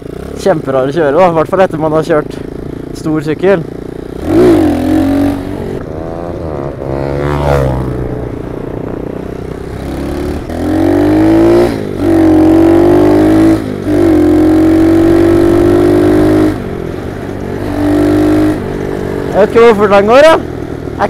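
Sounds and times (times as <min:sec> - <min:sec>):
small motorbike engine revving: 0:03.8 - 0:08.2, 0:09.4 - 0:16.6, 0:17.6 - 0:19.4.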